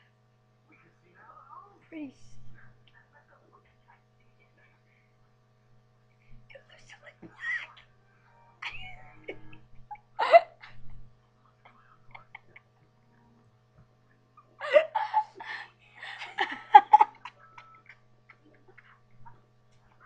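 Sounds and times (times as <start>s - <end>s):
girl giggling and laughing: 8.6s - 11.0s, 12.0s - 12.8s, 14.4s - 19.1s.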